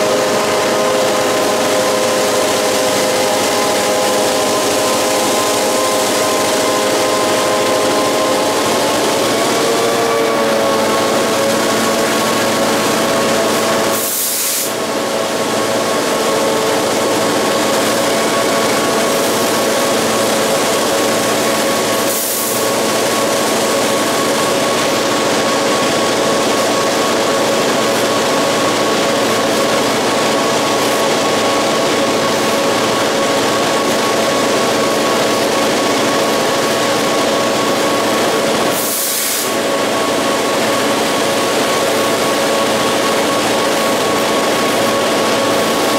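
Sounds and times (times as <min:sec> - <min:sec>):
diesel locomotive engine hum: 0:00.0 - 0:45.9
wheel and rail noise: 0:00.0 - 0:45.9
brief hisses: 0:14.0 - 0:14.8, 0:38.8 - 0:39.6.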